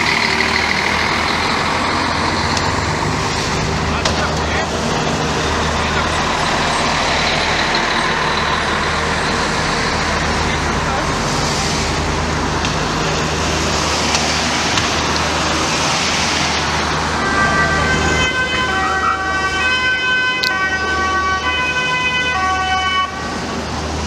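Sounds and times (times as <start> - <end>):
vehicles driving past: 0.0 - 24.0
emergency siren: 13.1 - 23.7.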